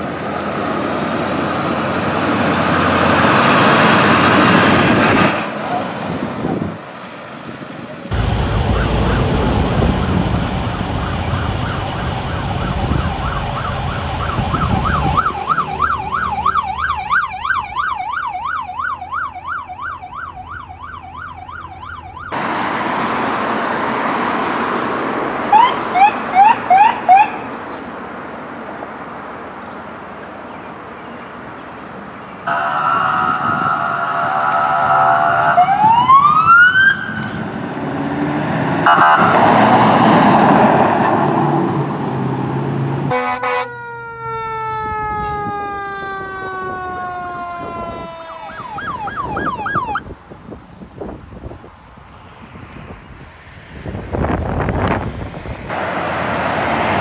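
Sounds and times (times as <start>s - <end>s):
heavy vehicle engine rumbling: 0.0s - 19.1s, 21.7s - 43.5s, 53.1s - 57.0s
siren wailing: 8.1s - 22.4s, 25.5s - 27.5s, 32.5s - 37.5s, 38.8s - 40.0s, 43.1s - 50.1s
electronic siren yelp: 10.6s - 22.4s, 25.5s - 27.4s, 32.5s - 37.4s, 38.8s - 39.4s, 43.1s - 50.0s
blaring horn: 32.5s - 36.0s, 38.8s - 39.4s, 43.1s - 44.0s
short siren chirps: 32.5s - 37.4s, 38.9s - 39.4s.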